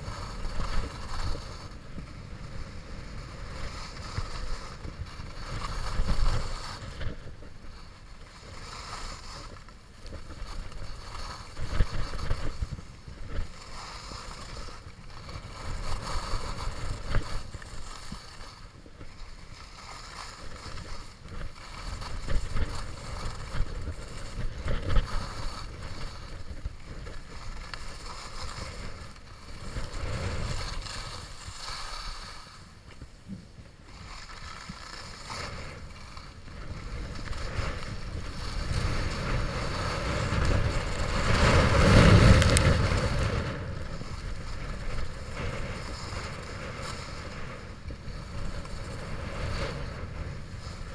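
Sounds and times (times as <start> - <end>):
skis hissing on snow: 0.0 - 50.9
wind rumbling on microphone: 0.0 - 50.9.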